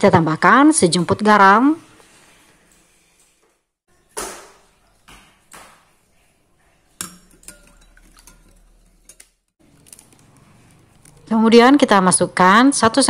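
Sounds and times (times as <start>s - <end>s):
metal spoon clinking against glass bowl: 7.0s - 9.4s.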